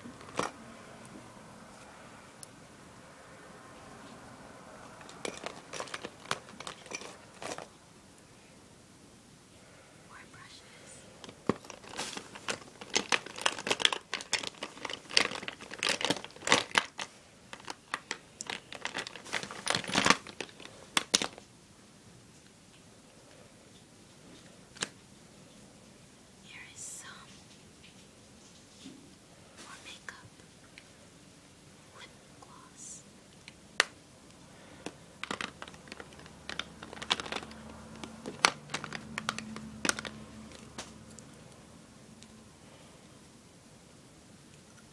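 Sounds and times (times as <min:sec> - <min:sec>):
plastic bag rustling and crackling: 0:00.0 - 0:00.6, 0:04.9 - 0:07.8, 0:11.2 - 0:21.4, 0:34.8 - 0:40.9
plastic containers clicking: 0:00.0 - 0:00.6, 0:04.9 - 0:07.7, 0:11.2 - 0:21.4, 0:34.8 - 0:40.9.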